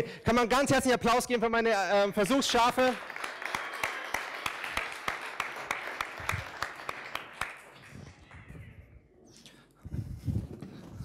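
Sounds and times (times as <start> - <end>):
crowd clapping: 2.1 - 8.8.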